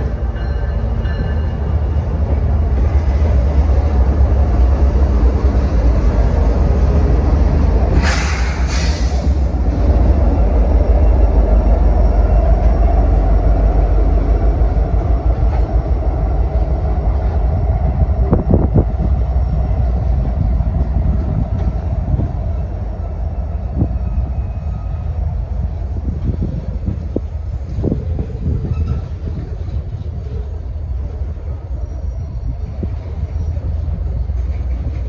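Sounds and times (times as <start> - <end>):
diesel locomotive engine: 0.0 - 35.0
heavy low rumble of train: 0.0 - 35.0.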